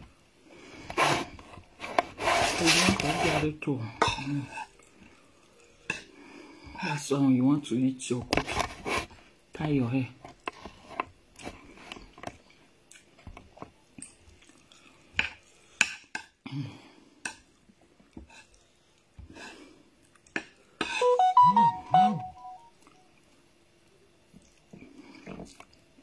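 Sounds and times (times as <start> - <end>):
chewing and lip smacking: 14.0 - 14.9, 20.0 - 20.4, 24.3 - 25.8
electronic phone jingle: 21.0 - 22.8.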